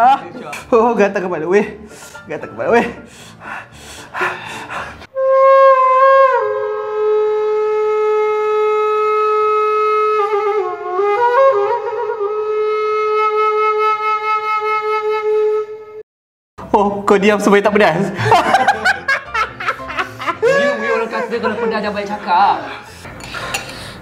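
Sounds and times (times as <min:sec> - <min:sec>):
flute playing slow melody: 0:05.1 - 0:16.0.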